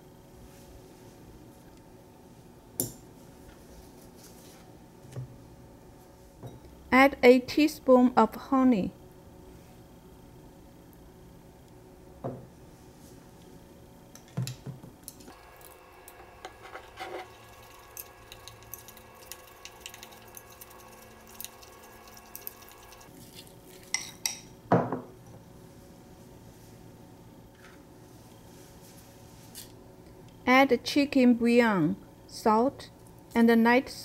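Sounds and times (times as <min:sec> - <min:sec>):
chopsticks scraping a porcelain bowl: 0:16.4 - 0:19.0.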